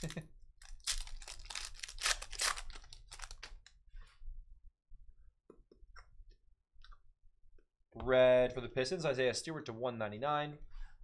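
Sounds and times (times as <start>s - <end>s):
foil wrapper crinkling: 0.0s - 3.7s.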